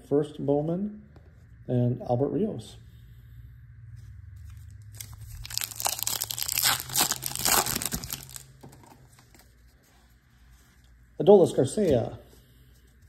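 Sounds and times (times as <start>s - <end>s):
foil wrapper tearing and crinkling: 4.9s - 8.6s.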